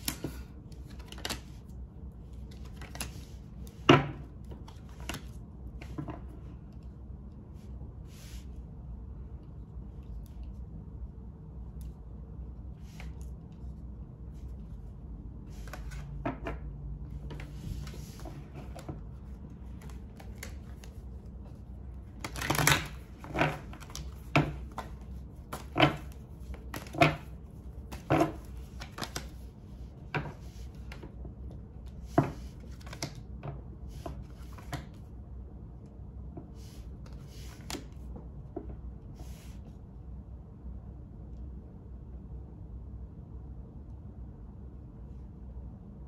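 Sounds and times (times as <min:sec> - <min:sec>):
cards being shuffled: 0:00.0 - 0:06.9, 0:12.6 - 0:35.1, 0:36.6 - 0:38.2.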